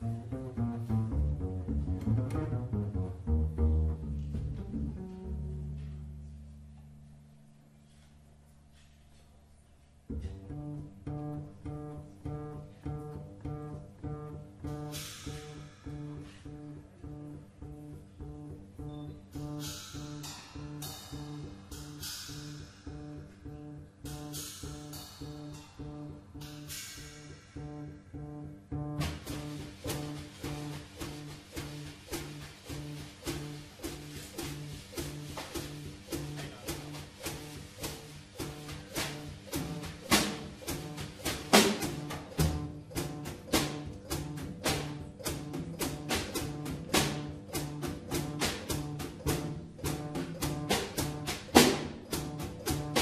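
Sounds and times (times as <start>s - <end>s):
drum kit strokes: 0.0s - 6.7s, 10.1s - 53.0s
double bass plucking low riff: 0.0s - 7.5s, 10.1s - 53.0s
cymbal crashes: 19.6s - 28.2s.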